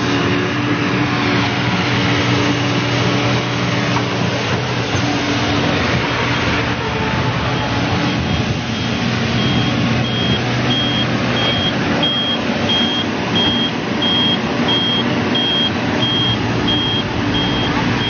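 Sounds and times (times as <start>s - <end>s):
excavator diesel engine running: 0.0s - 18.0s
high-pitched warning beeper: 7.5s - 17.8s.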